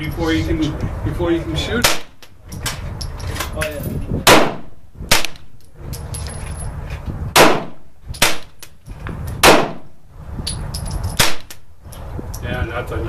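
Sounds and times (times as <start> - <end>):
rifle shots cracking: 4.2 - 5.5, 7.4 - 8.6, 9.4 - 9.9, 11.2 - 11.6
distant gunshots: 4.3 - 5.4, 7.4 - 8.5, 9.4 - 9.9.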